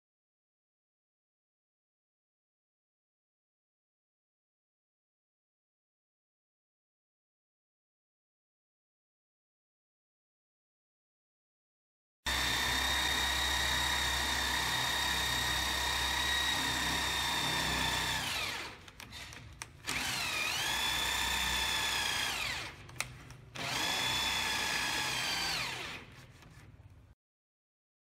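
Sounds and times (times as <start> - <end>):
electric drill boring into wood: 12.3 - 23.0, 23.6 - 26.3
click: 18.8 - 19.8, 22.9 - 23.4.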